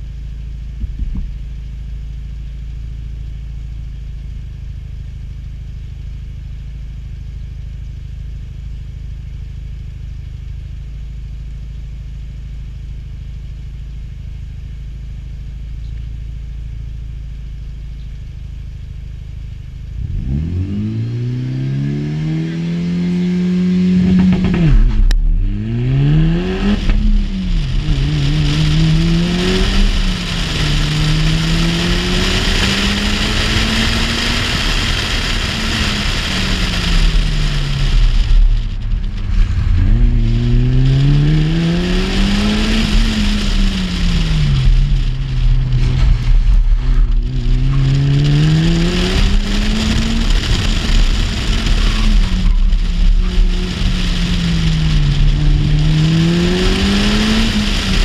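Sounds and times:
wind and road noise: 0.7s - 1.6s, 19.9s - 58.0s
car engine revving: 19.7s - 58.0s.

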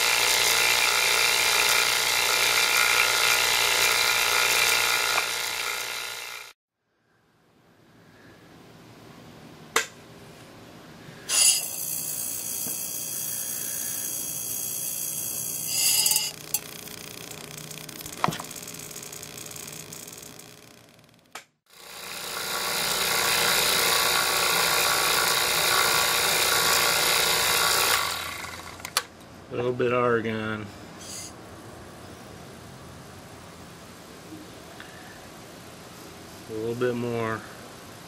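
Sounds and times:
discharge tube buzzing hiss: 11.3s - 20.5s.

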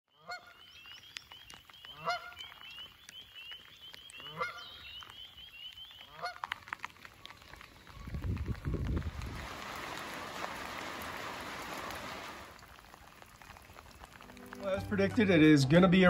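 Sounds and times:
goose honking: 0.2s - 0.6s, 1.9s - 2.4s, 4.2s - 4.8s, 6.1s - 6.5s.

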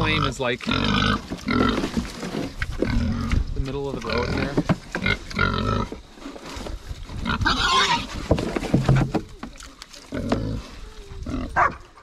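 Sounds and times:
pigs chewing: 0.0s - 12.0s
pigs grunting: 0.0s - 12.0s.

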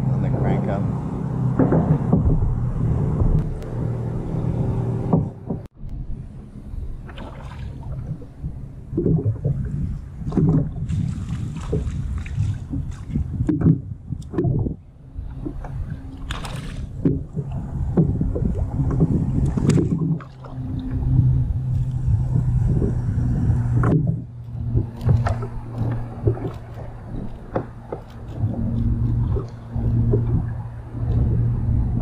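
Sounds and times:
steady low hum: 0.0s - 32.0s
water lapping against kayak hull: 0.1s - 5.8s, 6.6s - 32.0s
short knocks and clicks: 1.5s - 2.5s, 5.0s - 5.7s.

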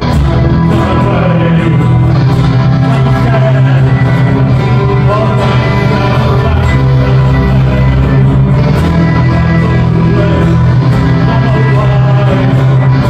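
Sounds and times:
live rock band with strings: 0.0s - 13.0s.

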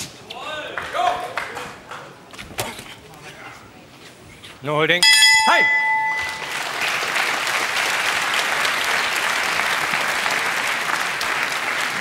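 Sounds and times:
crowd applauding: 6.0s - 12.0s.

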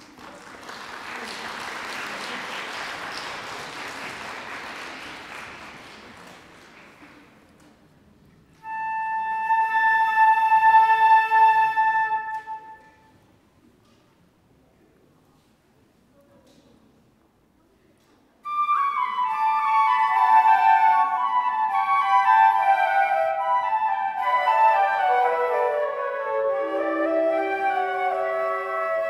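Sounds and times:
audience applause: 0.0s - 7.6s
flute ensemble held note: 8.6s - 13.0s, 18.5s - 29.0s.

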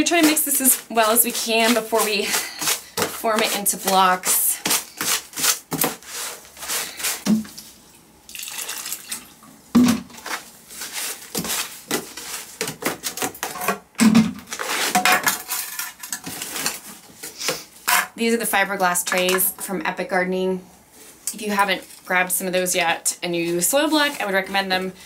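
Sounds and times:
scoop scraping through soil: 0.0s - 7.2s.

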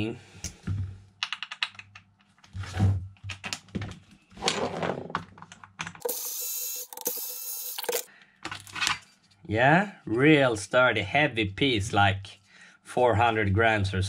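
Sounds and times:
screwdriver bits clicking and rattling: 5.5s - 8.9s
cordless screwdriver running: 6.0s - 8.1s.

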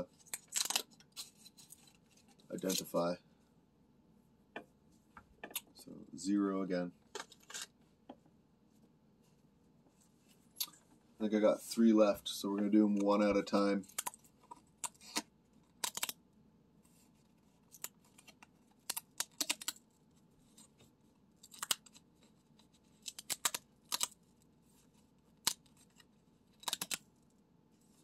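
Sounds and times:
paper tabs tearing: 0.3s - 1.4s, 18.8s - 19.8s, 23.0s - 24.2s, 26.6s - 27.0s.

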